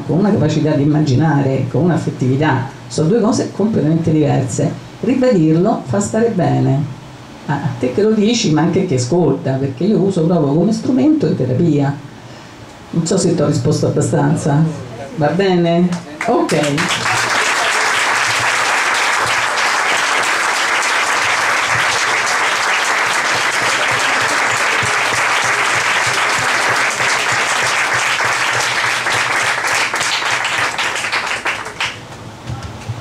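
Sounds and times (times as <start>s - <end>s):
audience applauding: 16.2s - 32.0s.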